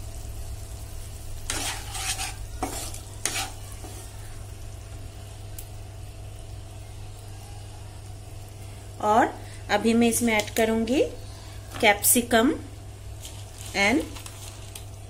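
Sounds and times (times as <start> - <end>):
faint sizzle: 0.0 - 15.0
wooden spatula scraping a wok: 1.4 - 4.2.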